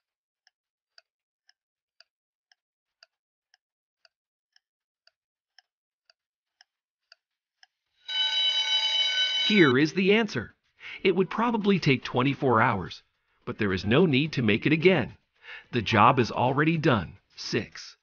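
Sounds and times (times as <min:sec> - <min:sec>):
clock ticking: 0:00.4 - 0:10.5, 0:11.2 - 0:12.9
loud buzzer tone: 0:08.1 - 0:09.8.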